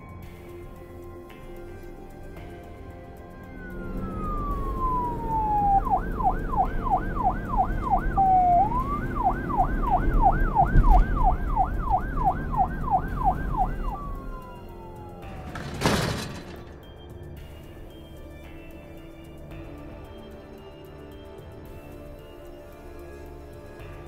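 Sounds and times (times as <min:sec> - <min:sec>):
police siren wailing and yelping: 0:01.5 - 0:16.5.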